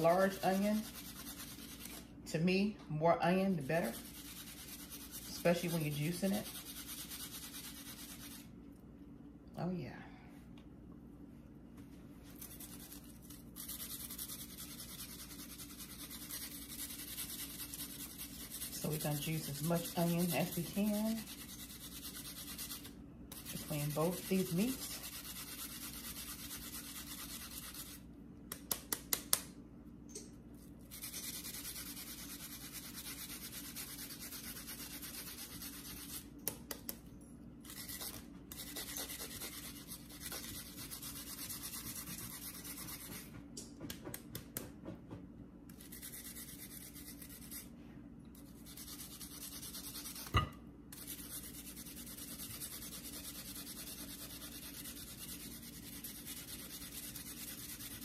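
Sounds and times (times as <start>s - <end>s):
scraping and rubbing strokes: 0.0s - 2.1s, 3.6s - 8.5s.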